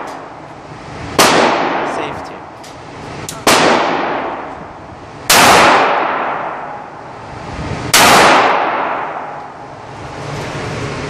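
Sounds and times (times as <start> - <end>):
pistol shots echoing indoors: 1.2 - 2.0, 3.4 - 4.6, 5.3 - 6.9, 7.9 - 9.5.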